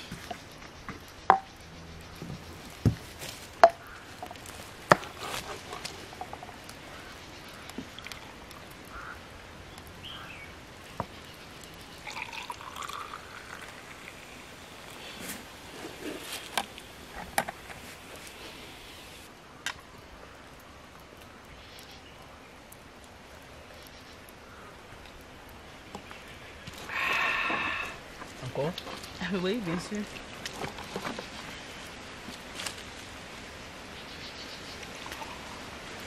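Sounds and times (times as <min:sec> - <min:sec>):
wine trickling into cup: 0:11.6 - 0:15.2.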